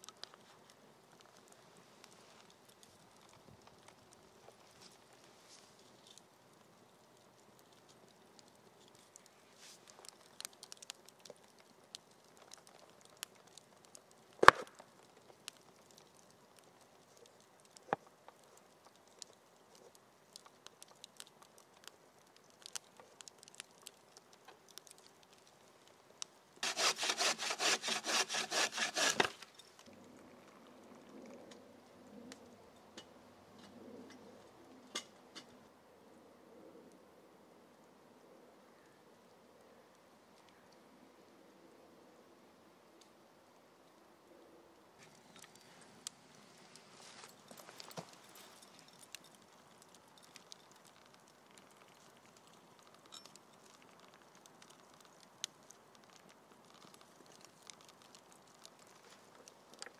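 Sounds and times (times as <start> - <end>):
sawing or rasping strokes: 26.6 - 29.4.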